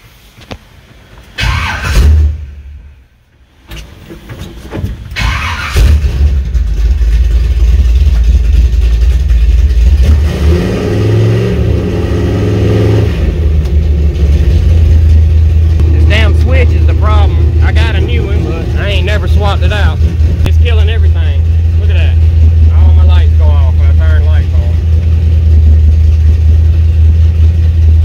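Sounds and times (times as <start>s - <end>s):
engine starting: 1.4s - 2.5s, 3.7s - 6.6s
engine running loud and deep: 5.2s - 28.0s.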